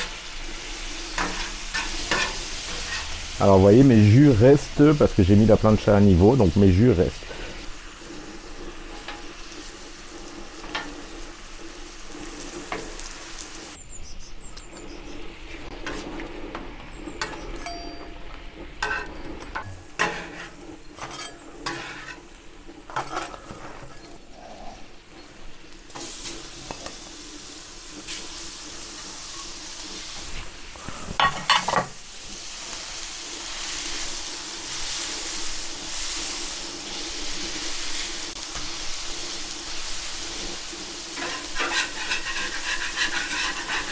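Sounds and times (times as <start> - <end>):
food sizzling on a griddle: 0.0 - 13.8, 14.8 - 43.9
metal spatula scraping a plate: 1.0 - 3.3, 18.8 - 24.2, 41.1 - 43.9.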